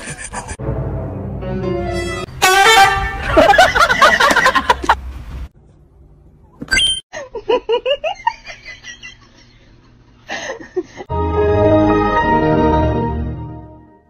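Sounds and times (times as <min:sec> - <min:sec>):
person giggling: 0:00.0 - 0:00.6.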